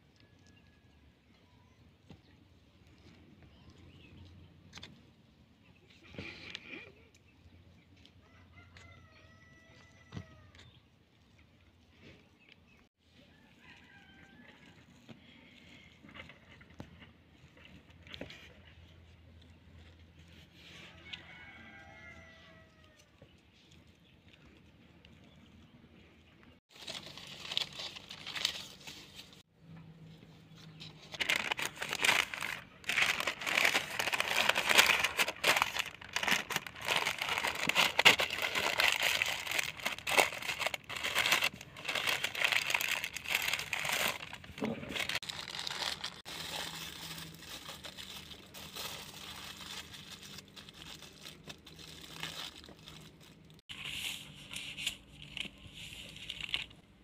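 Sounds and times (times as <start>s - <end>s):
paper crinkling and rustling: 26.6s - 29.5s, 30.3s - 56.8s.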